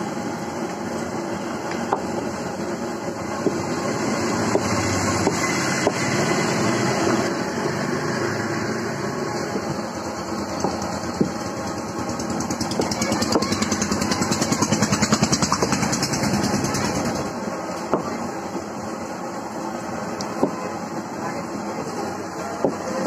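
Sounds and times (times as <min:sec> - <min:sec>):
street traffic noise: 0:00.0 - 0:23.0
small engine passing: 0:03.7 - 0:10.1, 0:10.8 - 0:17.3.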